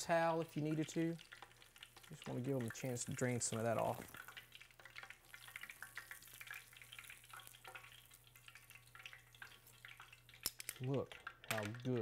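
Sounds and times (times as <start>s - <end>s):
shrimp deep-frying in hot oil: 0.0s - 12.0s.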